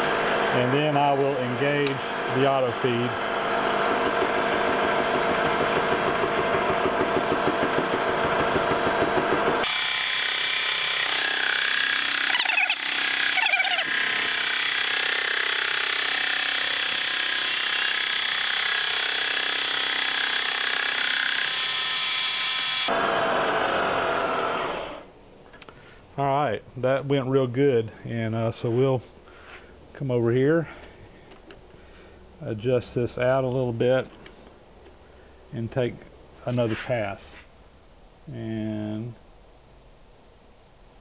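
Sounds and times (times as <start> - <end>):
milling machine spindle running: 0.0 - 25.0
high-pitched metal cutting noise: 9.6 - 18.8.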